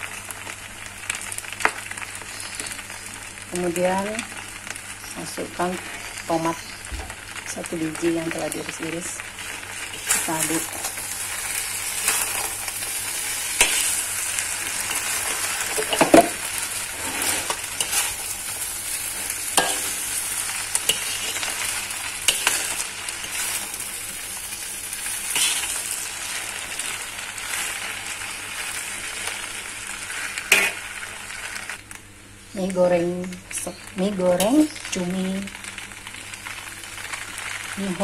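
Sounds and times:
food sizzling in a wok: 0.0 - 38.0
spatula scraping a pan: 9.5 - 28.8.

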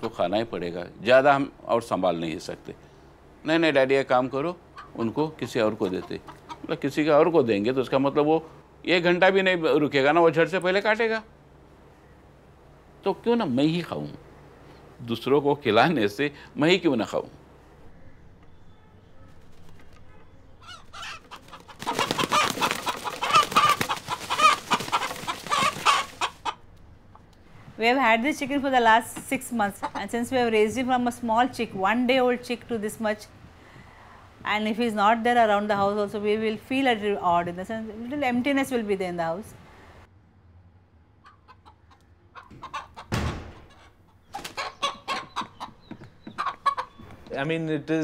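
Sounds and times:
rooster squawking: 20.3 - 26.6, 41.2 - 47.0.

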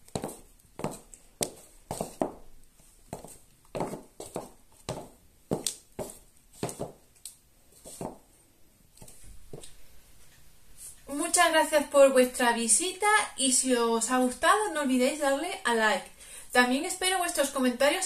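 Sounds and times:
heels clicking on wooden floor: 0.0 - 2.5, 3.1 - 7.0, 7.8 - 8.3.

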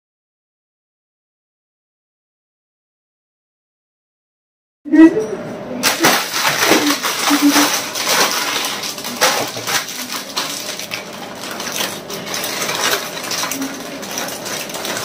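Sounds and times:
chip packets crinkling and tearing: 5.8 - 15.0.

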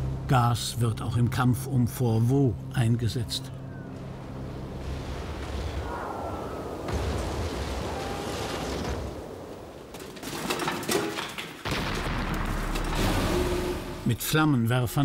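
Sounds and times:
distant gunfire and explosions: 4.0 - 10.7, 11.6 - 13.8.

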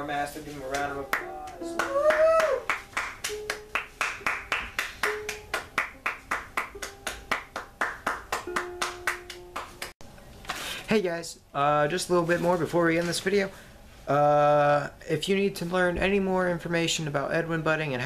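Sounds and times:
hands clapping: 0.6 - 10.0.

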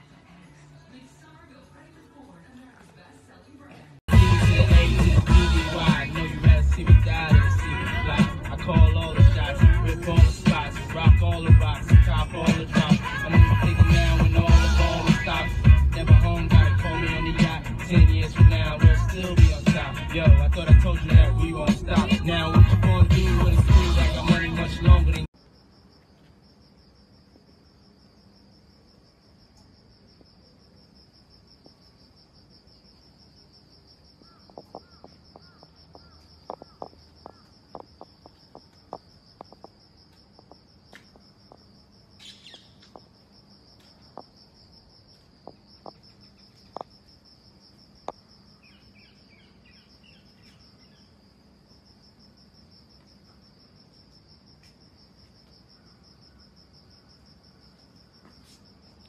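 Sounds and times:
crickets trilling: 5.6 - 14.0, 24.0 - 59.0.

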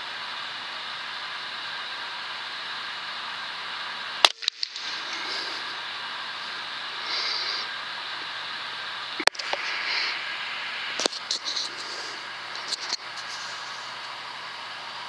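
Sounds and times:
steady hiss: 0.0 - 15.0
air rifle shots: 4.2 - 5.0.

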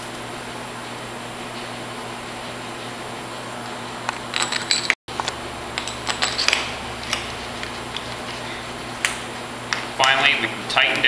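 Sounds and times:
steady low hum: 0.0 - 11.0
metal bolts clinking: 4.1 - 8.1.

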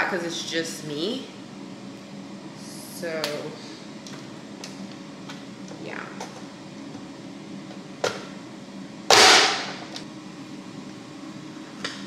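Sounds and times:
chopper blade sharp snap: 9.1 - 9.7.

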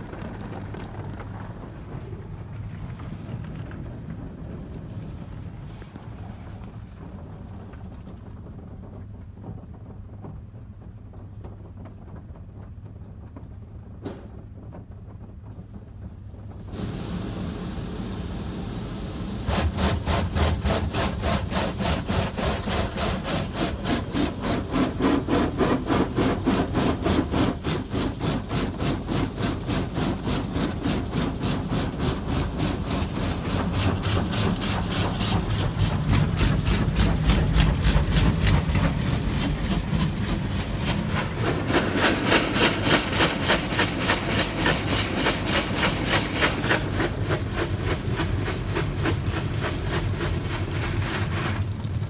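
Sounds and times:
car wash water spraying: 16.6 - 52.0.

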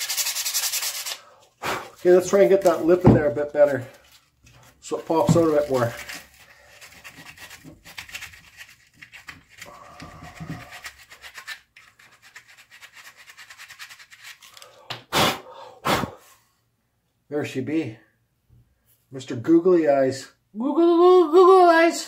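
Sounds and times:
sandpaper rubbing on wood: 0.0 - 3.0.

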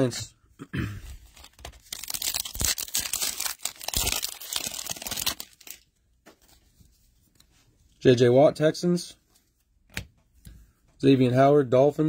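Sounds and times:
foil wrapper tearing and crinkling: 1.2 - 5.8.

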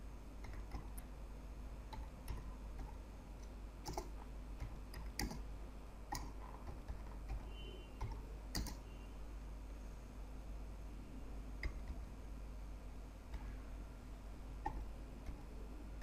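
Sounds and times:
keyboard typing clicks: 0.4 - 1.1, 1.9 - 5.5, 6.1 - 8.9, 11.6 - 12.1, 14.6 - 16.0.

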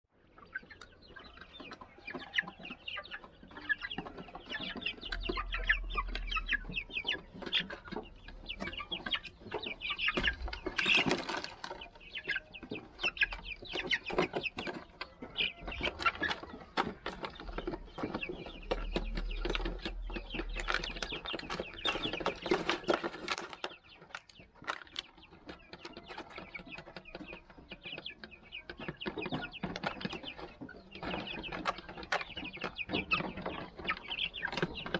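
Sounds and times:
chicks clucking and peeping: 0.1 - 34.9.

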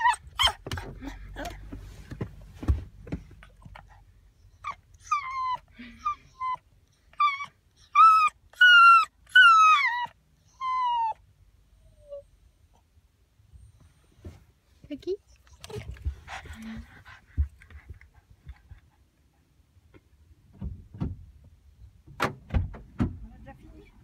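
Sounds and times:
puppy whining: 0.0 - 1.6, 3.5 - 12.9, 15.3 - 19.0.

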